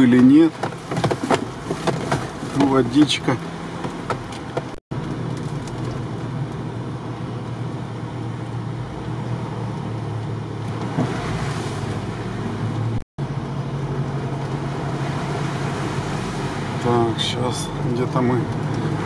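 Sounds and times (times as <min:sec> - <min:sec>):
tyre and body noise: 0:00.0 - 0:04.8
vehicle engine drone: 0:00.0 - 0:19.0.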